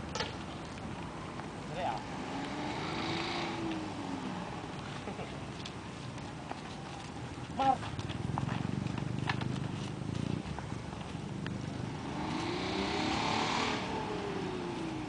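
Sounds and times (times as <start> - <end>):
vehicle passing by: 1.6 - 5.7, 7.5 - 15.0
vehicle engine running: 1.8 - 15.0.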